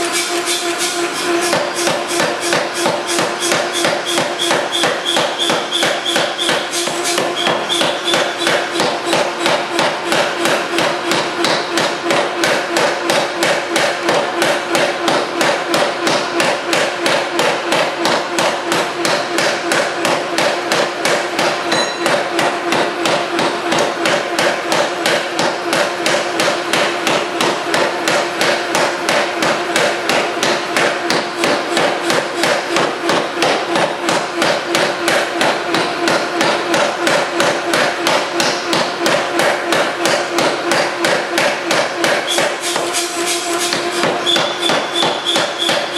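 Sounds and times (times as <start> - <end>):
machine humming: 0.0 - 16.6
forging hammer pounding metal: 0.0 - 45.9.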